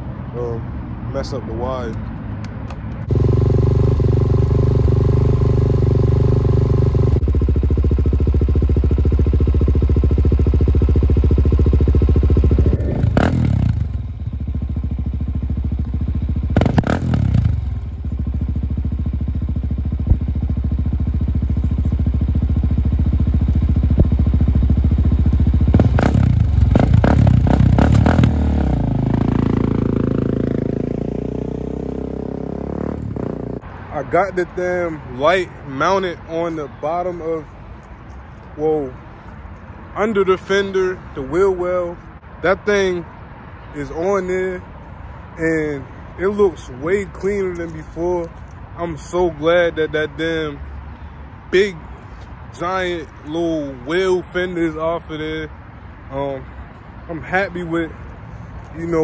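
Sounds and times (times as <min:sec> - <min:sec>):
motorcycle throttle blips: 0:02.4 - 0:33.6
motorcycle engine idling: 0:03.1 - 0:33.6.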